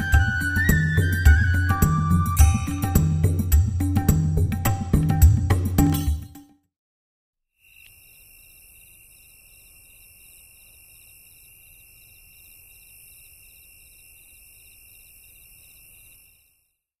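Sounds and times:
insects trilling: 7.6s - 16.8s.

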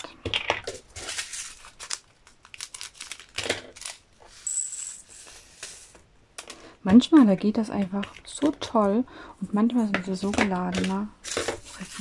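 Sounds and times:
plastic bag crinkling: 0.0s - 6.0s, 10.2s - 12.0s
plastic jars clicking: 6.4s - 9.0s, 9.8s - 12.0s.

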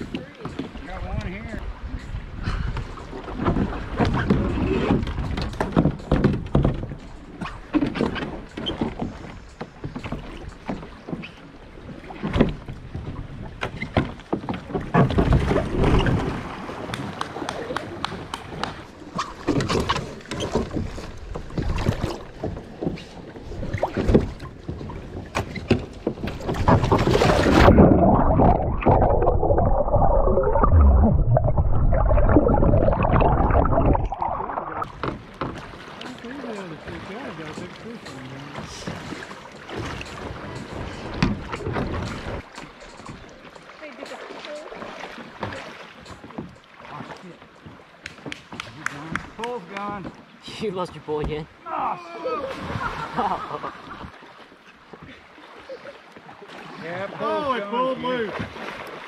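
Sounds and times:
water splashing: 0.0s - 59.0s
underwater bubbling rush: 26.3s - 35.4s.

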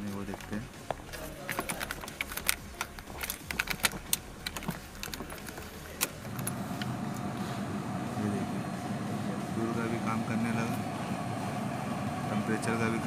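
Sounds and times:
steady electrical hum: 0.0s - 13.0s
hands clicking and rattling dashboard: 0.2s - 6.9s.

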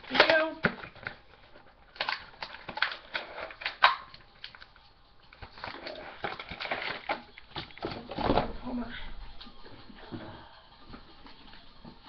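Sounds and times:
toy packaging clicks and scrapes: 0.0s - 8.2s.

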